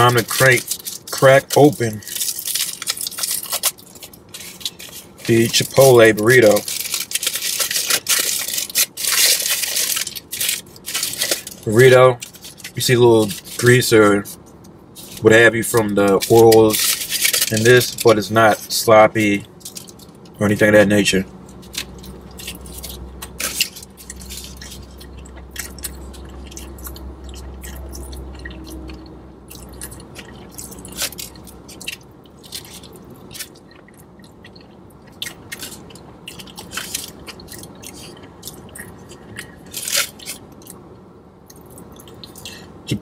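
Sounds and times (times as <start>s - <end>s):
foil rustling: 0.0s - 27.0s, 39.6s - 40.6s
person chewing food: 2.0s - 5.5s, 21.4s - 40.9s, 41.5s - 43.0s.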